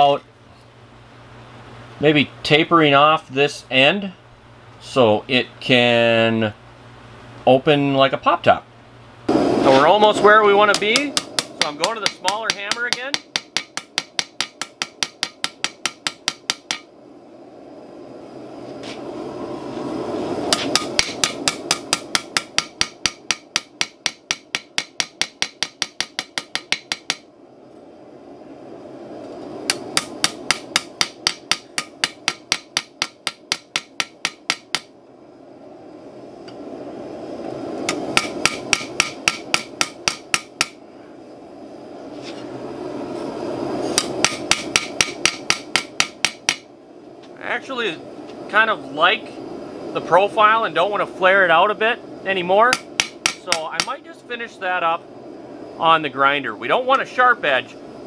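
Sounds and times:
rushing noise: 9.3s - 11.2s
hammer striking steel on anvil: 10.7s - 16.9s, 20.5s - 27.2s, 29.7s - 34.9s, 37.9s - 40.8s, 44.0s - 46.7s, 52.7s - 54.0s.

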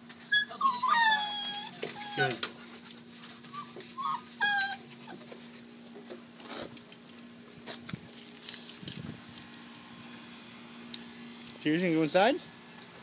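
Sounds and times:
puppy whining: 0.1s - 5.5s
paws scuffling and pattering: 1.5s - 9.2s
steady low hum: 4.8s - 13.0s.

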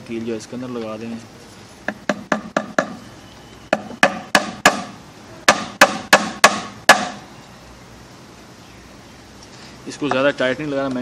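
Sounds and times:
hammer striking metal nail: 1.9s - 3.0s, 3.7s - 7.2s.

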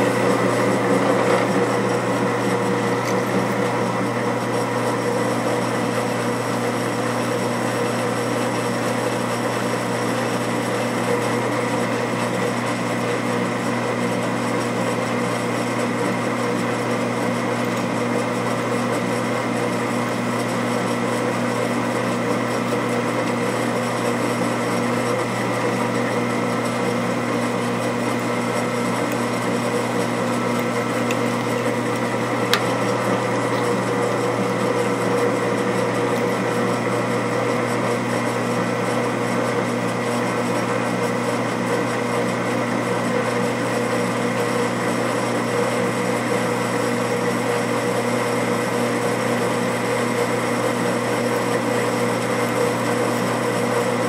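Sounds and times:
drill press cutting metal: 0.0s - 5.4s, 10.4s - 38.2s.

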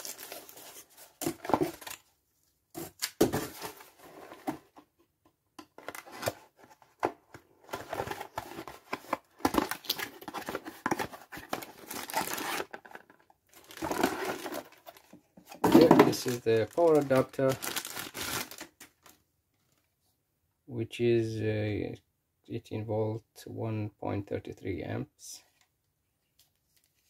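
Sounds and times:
cardboard scraping and tearing: 7.8s - 12.8s, 13.6s - 14.8s
plastic bag crinkling: 9.5s - 12.8s, 13.6s - 15.0s, 16.0s - 19.2s.

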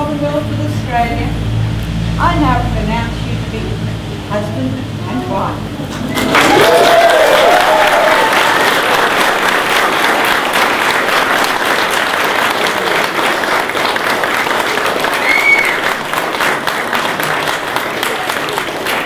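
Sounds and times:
guests applauding: 6.0s - 19.0s.

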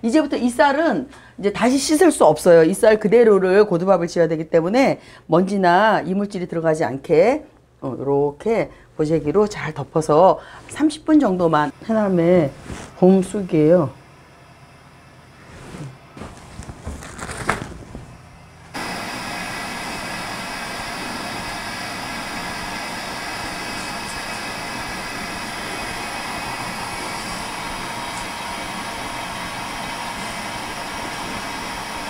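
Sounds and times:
leaves rustling in hands: 15.4s - 18.8s
water boiling in a pot: 18.8s - 32.0s.

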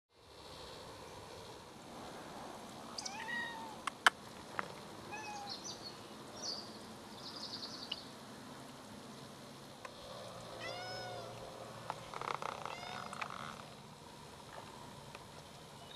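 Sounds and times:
cat meowing: 3.0s - 3.8s, 5.1s - 5.6s, 10.6s - 11.4s, 12.6s - 13.3s.

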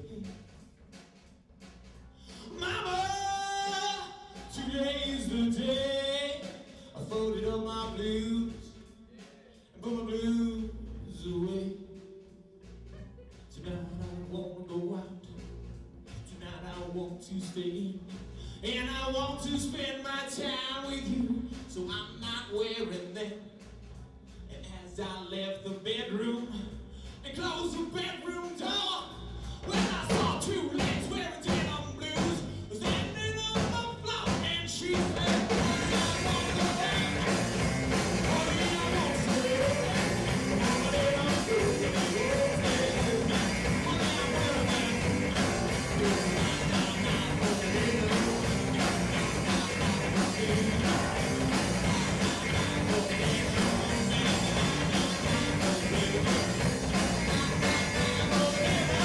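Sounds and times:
man singing: 2.3s - 12.4s, 13.5s - 15.4s, 16.2s - 23.5s, 24.5s - 59.0s
rock band playing: 33.6s - 59.0s.

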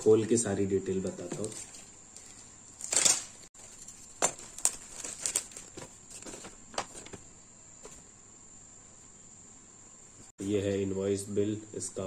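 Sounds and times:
packaging crinkling and rustling: 1.3s - 7.2s.

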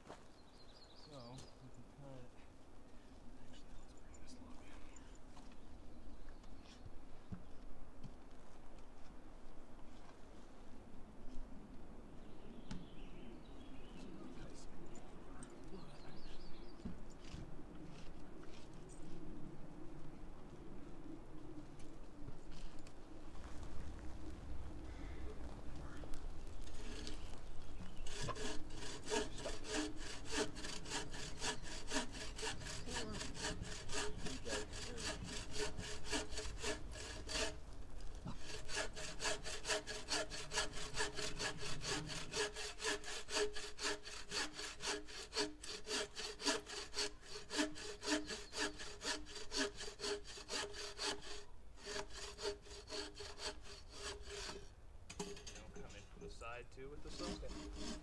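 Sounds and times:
hand saw cutting wood: 17.2s - 18.7s, 26.6s - 27.3s, 27.9s - 37.6s, 38.2s - 55.8s, 57.0s - 58.0s.

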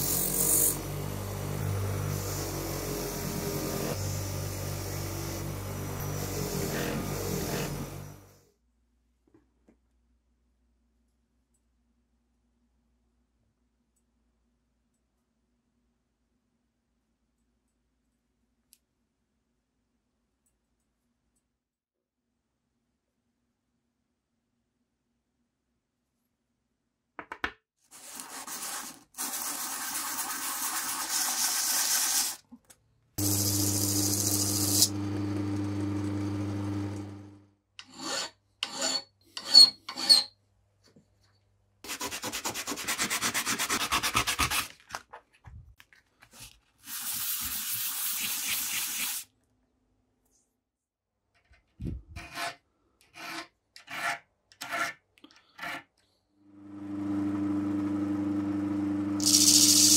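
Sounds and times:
electric motor hum: 0.0s - 8.3s, 33.2s - 37.4s, 56.5s - 59.9s
sandpaper rubbing on metal: 28.0s - 32.4s, 46.8s - 49.2s
file strokes on metal: 33.2s - 35.0s, 37.8s - 40.3s.

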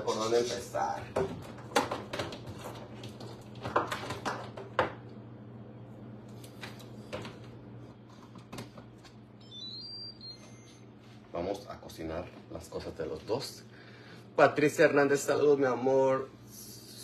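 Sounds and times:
kitchen items knocking on counter: 1.0s - 5.0s
high electronic chime: 9.4s - 10.8s.

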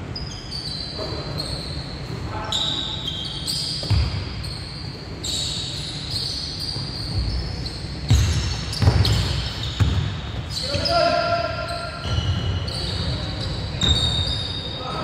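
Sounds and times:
sneakers squeaking: 0.0s - 15.0s
basketball bouncing: 3.8s - 4.2s, 8.1s - 10.5s.

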